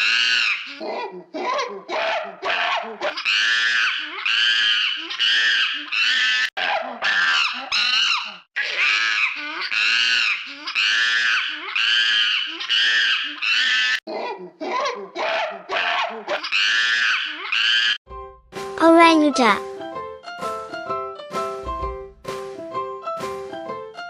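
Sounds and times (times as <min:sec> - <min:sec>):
monkey screaming: 0:00.0 - 0:18.0.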